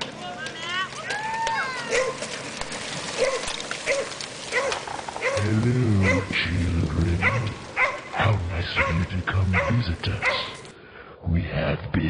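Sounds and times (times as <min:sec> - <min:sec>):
dog barking: 0:01.9 - 0:02.2, 0:03.2 - 0:06.3, 0:07.2 - 0:10.6
deep voice: 0:05.4 - 0:12.0.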